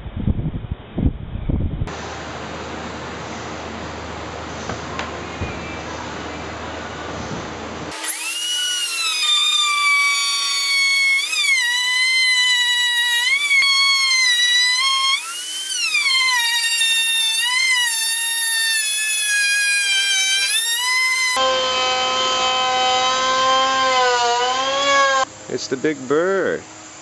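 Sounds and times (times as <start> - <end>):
router whining cutting wood: 7.9 - 25.3.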